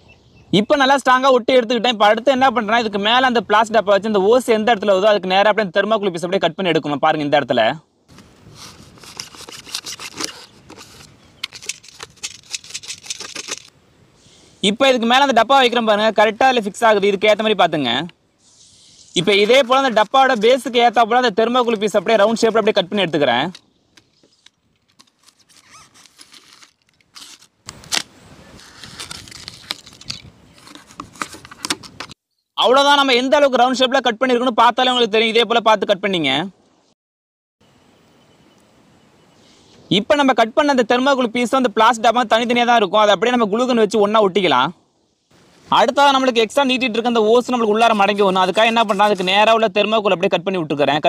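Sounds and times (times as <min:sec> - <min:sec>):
polystyrene foam crackling: 0:24.9 - 0:30.2.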